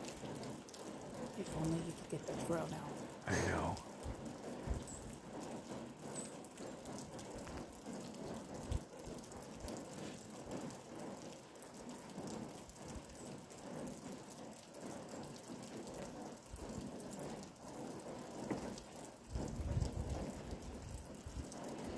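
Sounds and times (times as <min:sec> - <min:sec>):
rain pattering: 0:00.0 - 0:21.9.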